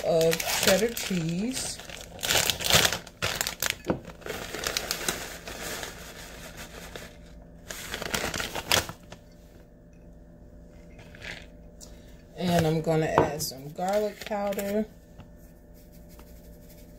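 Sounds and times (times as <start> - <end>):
plastic pouch crinkling: 0.0 - 9.2.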